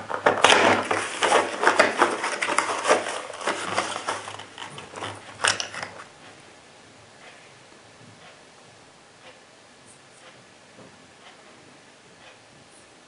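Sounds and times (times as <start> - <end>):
cardboard box scraping and crinkling: 0.4 - 5.2.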